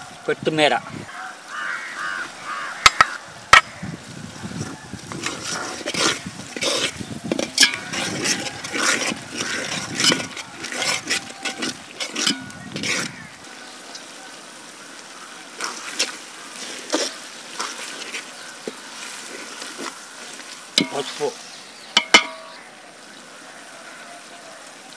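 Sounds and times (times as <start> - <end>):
ladle stirring and scraping pot: 4.6 - 13.3, 15.6 - 21.4, 22.0 - 22.5.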